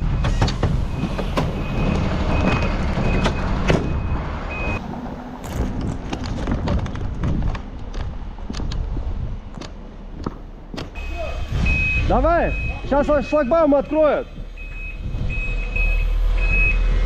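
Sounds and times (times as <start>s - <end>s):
short high warning beeps: 11.0s - 16.8s.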